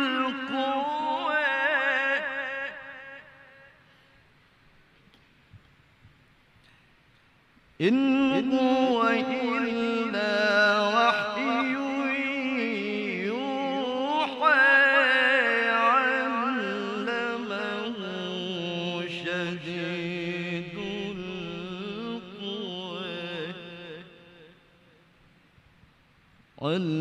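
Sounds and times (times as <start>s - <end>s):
man reciting melodically: 0.0s - 3.8s, 7.8s - 24.9s, 26.6s - 27.0s.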